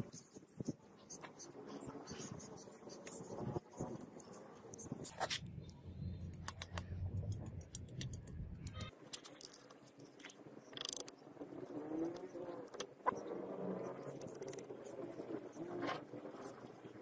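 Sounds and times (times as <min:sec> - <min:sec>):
low hum: 0:02.6 - 0:08.9.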